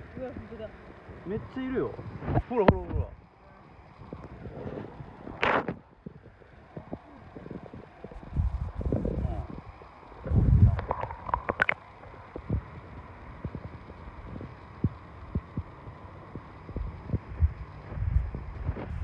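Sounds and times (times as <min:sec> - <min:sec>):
underwater river rumble: 0:00.0 - 0:19.0
underwater knocks and clicks: 0:10.2 - 0:12.6.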